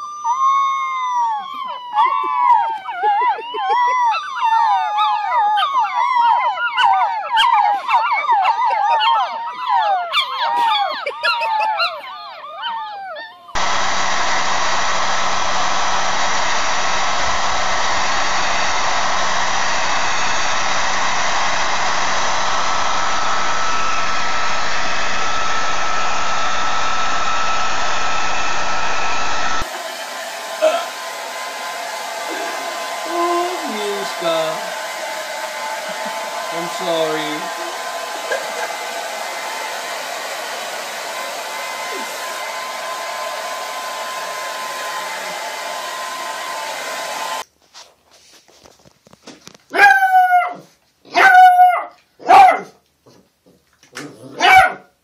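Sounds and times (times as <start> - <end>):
puppies howling: 0.0 - 13.6
hair dryer blowing: 13.5 - 47.5
loud rushing noise: 13.6 - 47.4.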